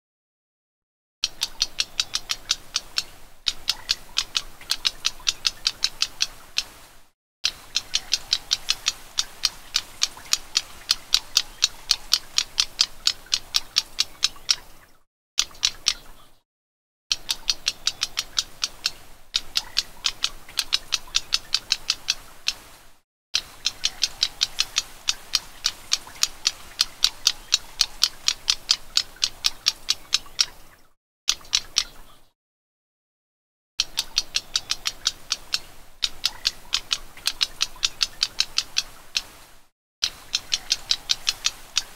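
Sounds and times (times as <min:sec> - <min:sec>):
warbler chattering call: 0:01.2 - 0:06.8, 0:07.5 - 0:14.8, 0:17.1 - 0:22.8, 0:23.4 - 0:30.6, 0:33.8 - 0:39.4, 0:40.0 - 0:41.9.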